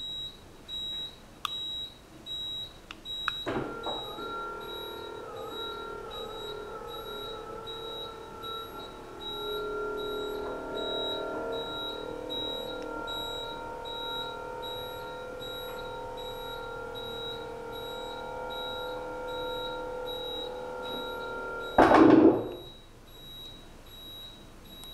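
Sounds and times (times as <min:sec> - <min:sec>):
faint high beep: 0:00.0 - 0:24.9
electric motor humming: 0:03.5 - 0:22.6
loud thud: 0:21.8 - 0:22.5.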